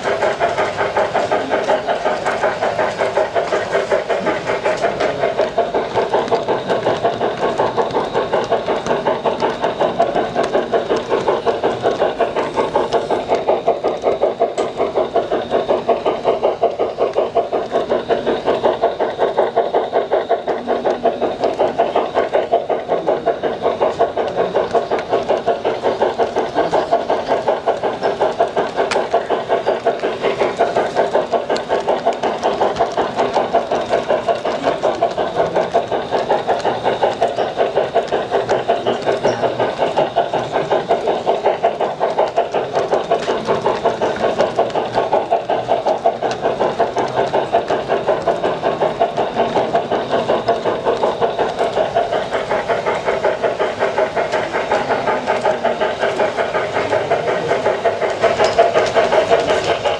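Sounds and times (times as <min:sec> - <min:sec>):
model train rhythmic clatter: 0:00.0 - 0:59.9.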